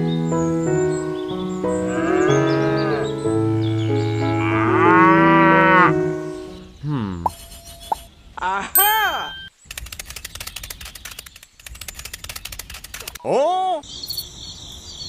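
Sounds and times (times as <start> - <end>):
background music with held notes: 0.0 - 6.8
cow mooing: 1.8 - 6.1.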